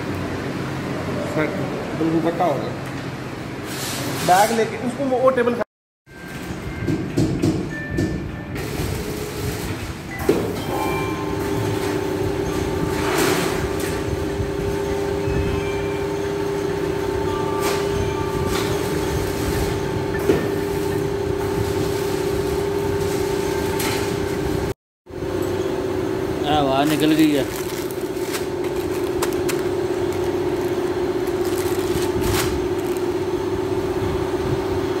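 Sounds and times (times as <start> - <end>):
packing machine humming: 6.2 - 35.0
plastic bag crackling: 26.7 - 33.2.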